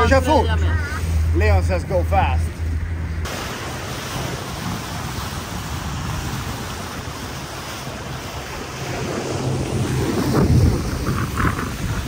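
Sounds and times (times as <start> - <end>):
low engine drone: 0.0 - 12.0
rushing water: 0.0 - 12.0
wind buffeting microphone: 2.6 - 12.0.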